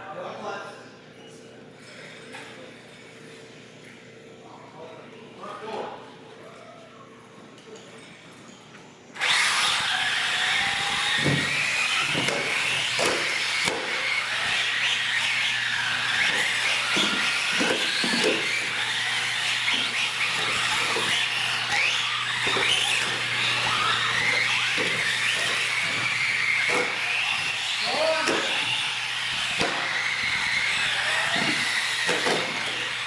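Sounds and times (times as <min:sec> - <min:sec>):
electric motors whining: 0:09.1 - 0:33.0.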